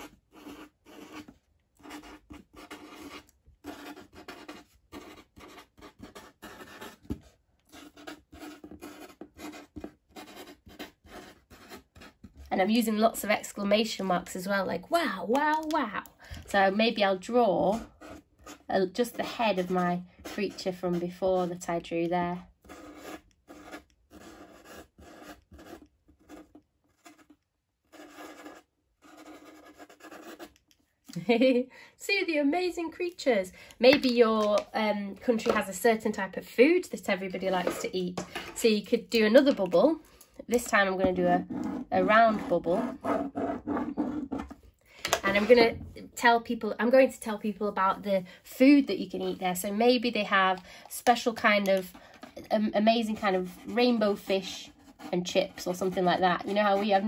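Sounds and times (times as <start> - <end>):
marker writing on paper: 0.0 - 12.2, 22.6 - 27.3, 27.9 - 30.5, 41.1 - 44.6.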